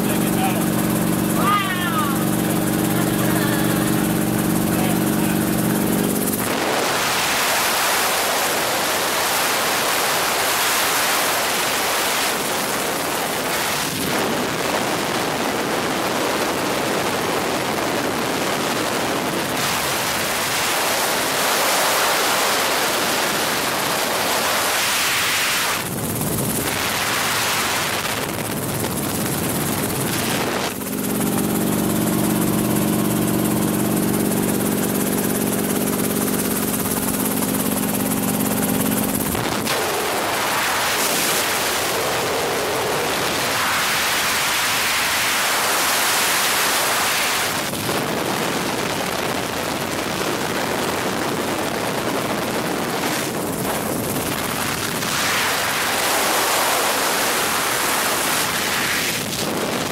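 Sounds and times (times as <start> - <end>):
helicopter engine and rotors drone: 0.0 - 59.9
wind rushing on microphone: 0.0 - 59.9.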